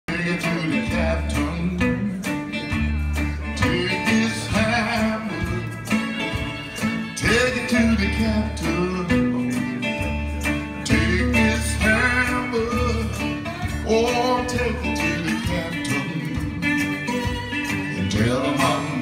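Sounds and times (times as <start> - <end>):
acoustic guitar: 0.0 - 19.0
man singing: 0.0 - 19.0.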